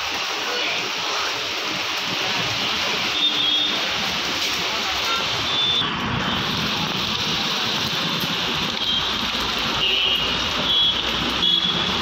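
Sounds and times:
heavy rain on pavement: 0.0s - 12.0s
traffic on wet road: 0.0s - 12.0s.

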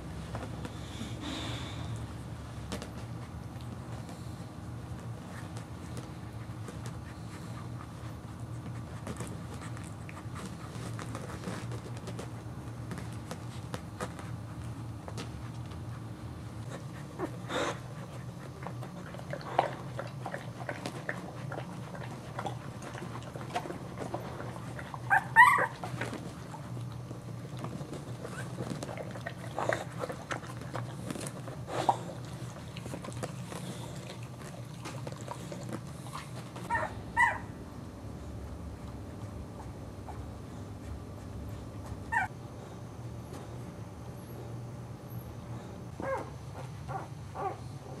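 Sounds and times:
puppies squeaking and whimpering: 25.0s - 26.0s, 36.7s - 37.5s, 42.1s - 42.3s
puppy high-pitched squeal: 25.1s - 25.8s, 42.1s - 42.3s.

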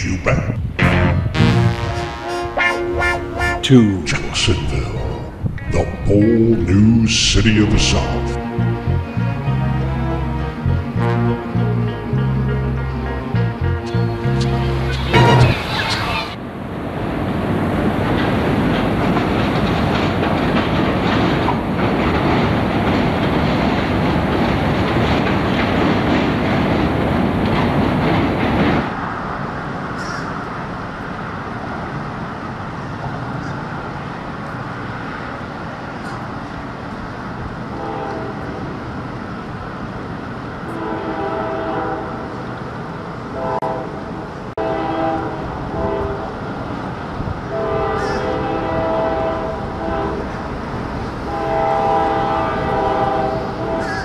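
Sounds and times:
train wheels rumbling on rails: 0.0s - 54.0s
locomotive air horn blasts: 0.8s - 3.9s, 8.3s - 15.6s, 37.7s - 38.5s, 40.8s - 42.2s, 43.4s - 43.9s, 44.6s - 46.2s, 47.5s - 50.2s, 51.3s - 54.0s.

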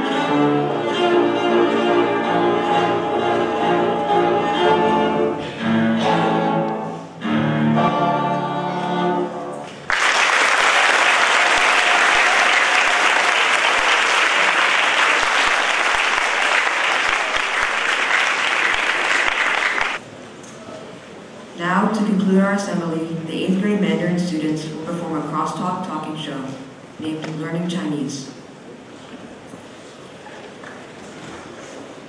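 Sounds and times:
cello bowed notes: 0.0s - 9.7s
audience applause: 9.7s - 20.0s.

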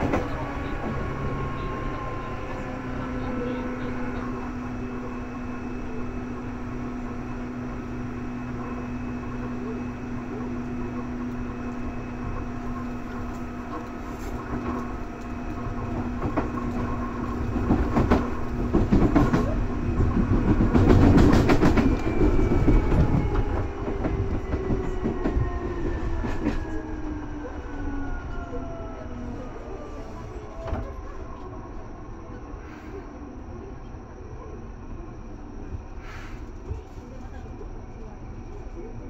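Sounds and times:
train wheels clattering over rail joints: 15.7s - 25.4s.

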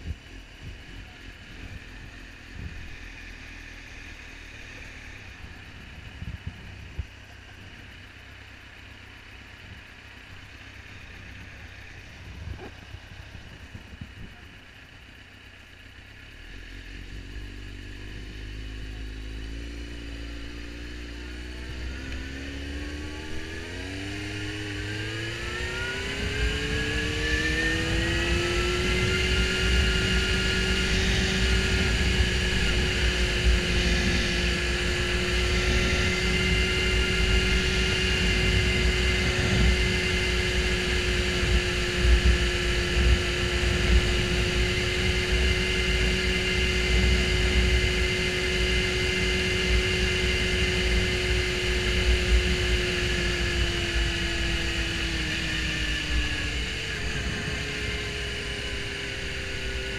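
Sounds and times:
motorcycle engine revving and droning: 0.0s - 59.9s
wind rumbling on microphone: 1.6s - 3.0s, 5.2s - 7.8s, 11.0s - 14.6s, 20.1s - 59.9s.

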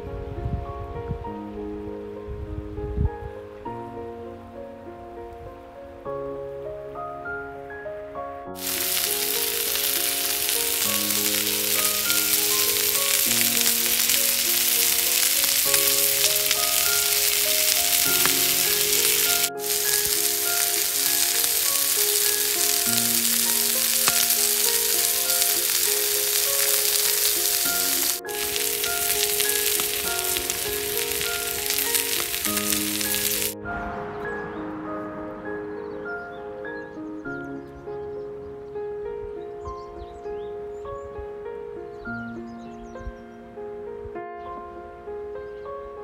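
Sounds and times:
slow background music: 0.0s - 46.0s
food sizzling on a griddle: 8.6s - 33.6s.

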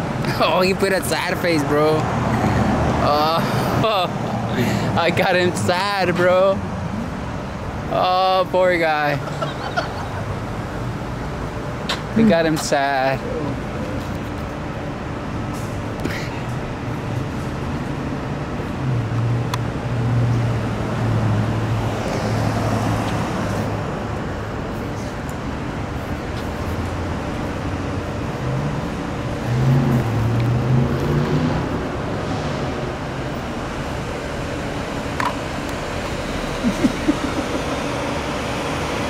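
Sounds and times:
traffic road noise: 0.0s - 39.0s
low engine hum: 13.2s - 39.0s.

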